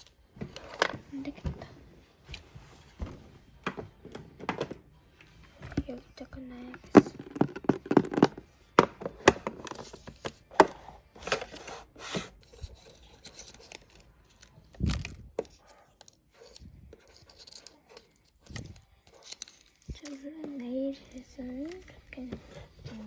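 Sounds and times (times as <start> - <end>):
paper rubbing and scraping: 11.4 - 14.0.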